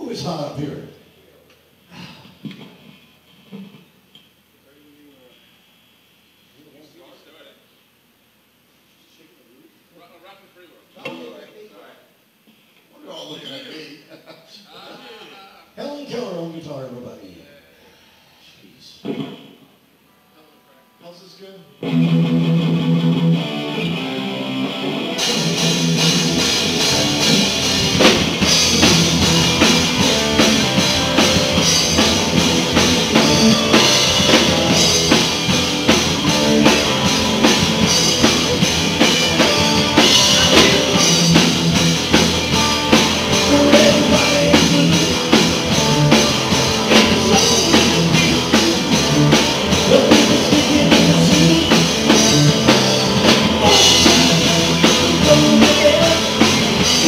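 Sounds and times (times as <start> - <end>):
bass guitar: 21.8 - 57.0
blues rock band playing: 21.8 - 57.0
drum kit steady beat: 21.8 - 57.0
electric guitar: 21.8 - 57.0.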